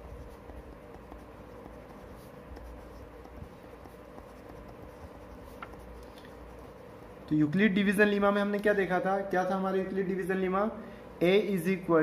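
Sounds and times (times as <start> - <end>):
pen scratching on paper: 0.0 - 7.3
steady low hum: 0.0 - 12.0.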